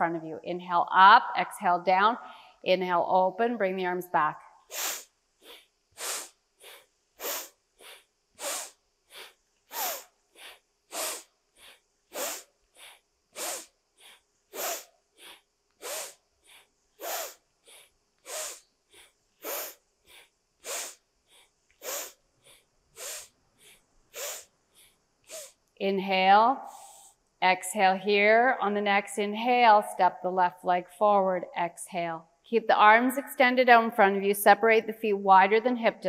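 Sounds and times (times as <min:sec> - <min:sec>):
woman breathing hard through nose: 0:04.7 - 0:25.6, 0:26.6 - 0:27.2.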